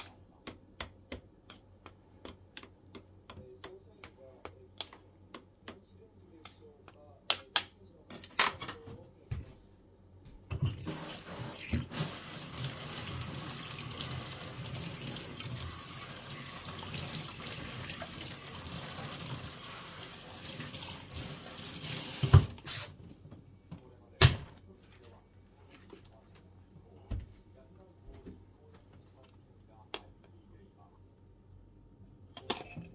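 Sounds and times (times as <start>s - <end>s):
kitchen tap running: 10.6s - 22.6s.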